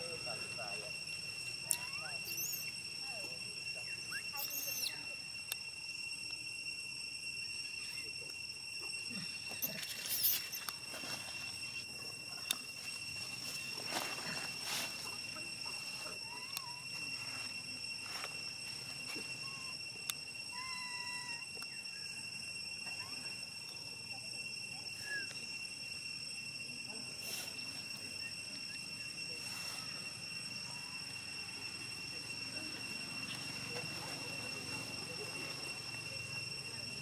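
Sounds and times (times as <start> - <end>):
high insect drone: 0.0 - 37.0
squeaky animal calls: 1.6 - 2.8, 3.8 - 5.2, 20.5 - 21.6.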